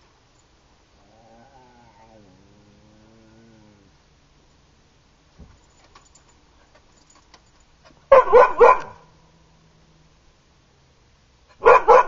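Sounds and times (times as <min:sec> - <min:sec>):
dog barking: 0:08.1 - 0:09.1, 0:11.5 - 0:12.0.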